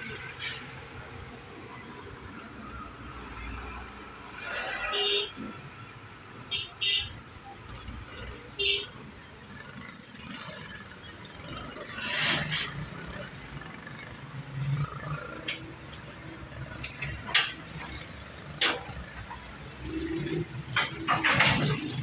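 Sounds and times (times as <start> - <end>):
passing vehicles: 0.0 - 22.0.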